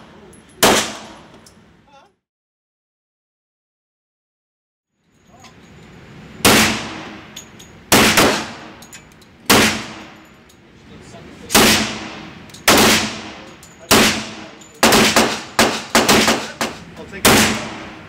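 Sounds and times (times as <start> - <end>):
pistol shots echoing indoors: 0.6 - 1.3, 6.5 - 8.8, 9.5 - 10.2, 11.5 - 18.0.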